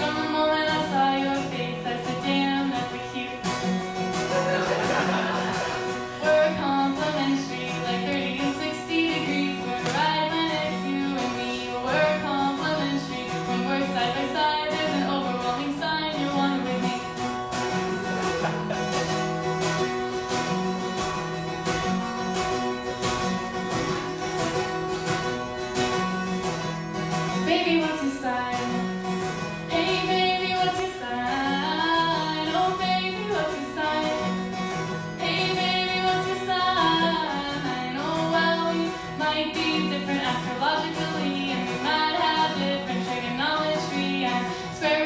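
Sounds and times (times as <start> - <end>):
woman singing: 0.0 - 4.3, 6.0 - 17.3, 27.3 - 29.0, 29.6 - 34.5, 35.1 - 45.0
strummed acoustic guitar: 0.0 - 45.0.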